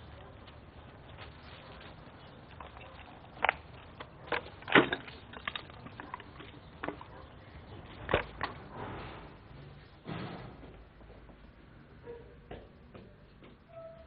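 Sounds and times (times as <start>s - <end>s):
footsteps on littered path: 0.0s - 8.7s.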